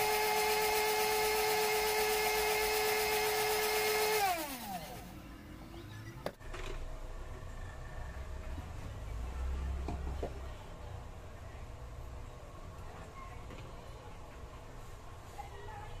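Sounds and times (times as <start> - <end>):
mixer grinder whining: 0.0 - 5.2.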